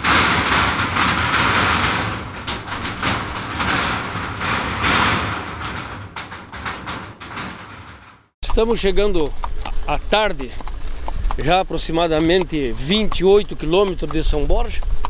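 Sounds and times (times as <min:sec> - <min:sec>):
hooves on steel bridge: 0:00.0 - 0:15.0.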